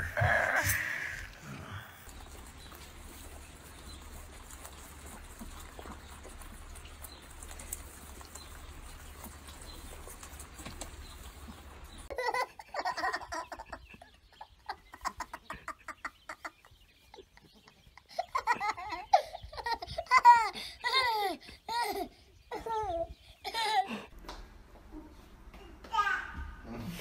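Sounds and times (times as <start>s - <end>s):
guinea pigs munching vegetables: 0.0s - 12.1s
toddler laughing: 12.1s - 16.6s, 18.0s - 24.1s.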